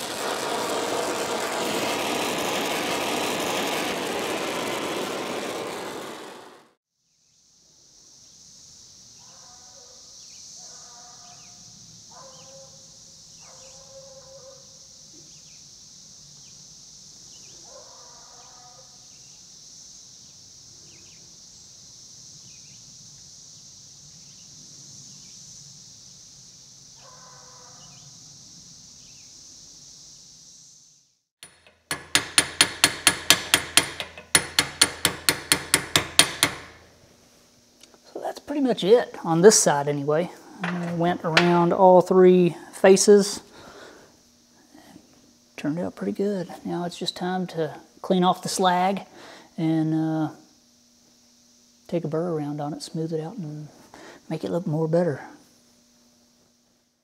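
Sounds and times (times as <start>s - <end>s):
welding arc crackling: 0.0s - 6.8s, 31.4s - 37.0s
cicadas droning: 0.0s - 57.0s.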